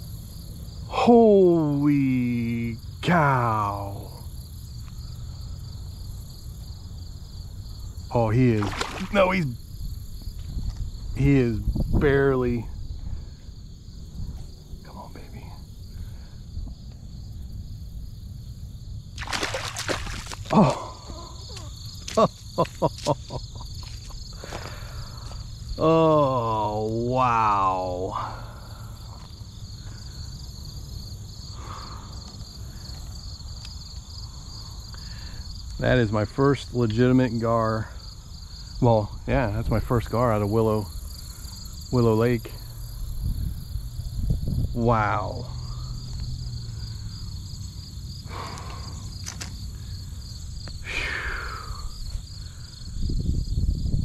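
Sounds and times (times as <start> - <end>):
insects chirping: 0.0 - 54.0
steady low rumble: 1.7 - 19.2, 38.5 - 54.0.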